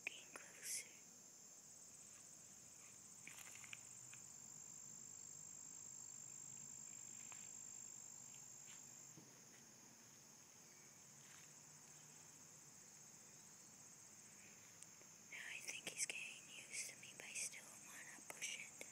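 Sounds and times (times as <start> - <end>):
insects trilling: 0.0 - 18.9
soft rustles: 2.0 - 4.2.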